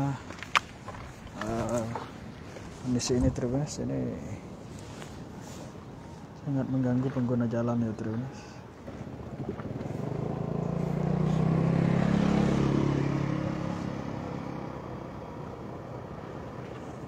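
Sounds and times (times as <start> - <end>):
motor vehicle passing: 8.6 - 17.0.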